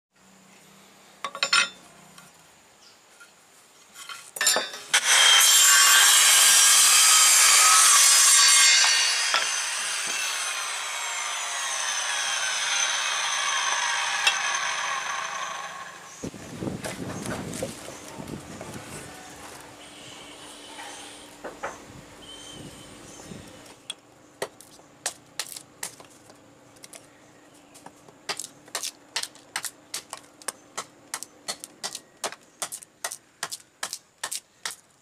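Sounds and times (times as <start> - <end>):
circular saw cutting wood: 4.9 - 16.2, 19.8 - 21.3
saw blade spinning down: 4.9 - 16.2.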